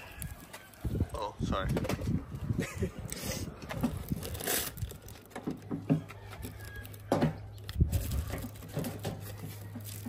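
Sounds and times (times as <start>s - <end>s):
plastic bag crinkling: 3.0s - 5.4s, 6.3s - 10.0s.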